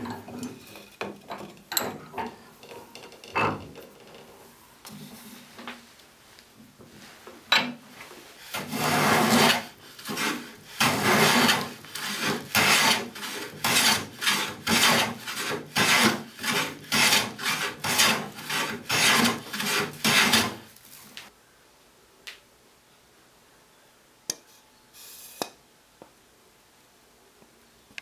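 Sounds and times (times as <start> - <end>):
hand plane shaving wood: 8.5 - 20.7.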